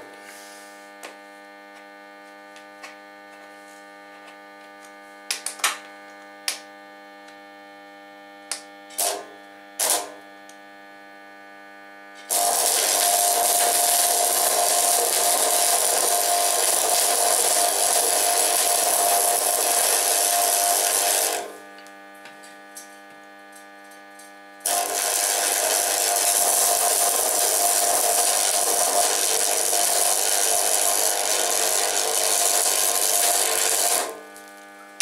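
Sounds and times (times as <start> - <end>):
steady mains hum: 0.0 - 35.0
welding arc crackling and hissing: 8.5 - 10.2, 12.3 - 21.9, 24.3 - 35.0.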